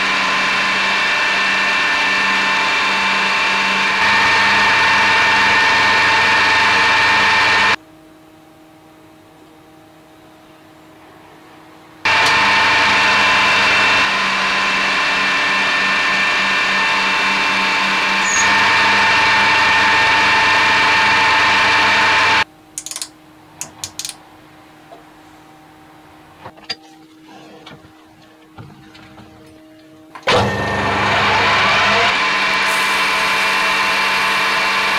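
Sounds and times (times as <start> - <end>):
metal lathe cutting: 0.0 - 7.8, 12.1 - 22.4, 30.2 - 34.9.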